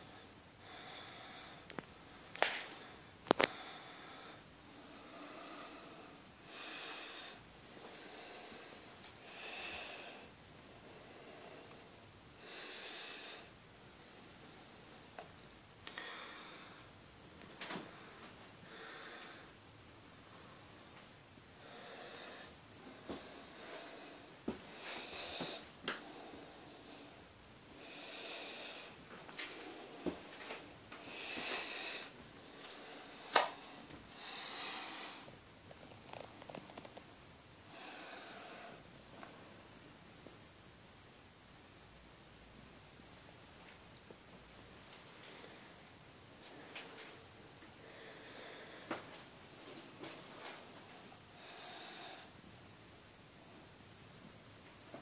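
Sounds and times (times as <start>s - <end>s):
person breathing heavily through nose: 0.0s - 15.2s, 15.9s - 17.0s, 17.9s - 19.6s, 21.6s - 35.4s, 37.7s - 38.9s, 47.8s - 49.2s, 50.4s - 52.4s.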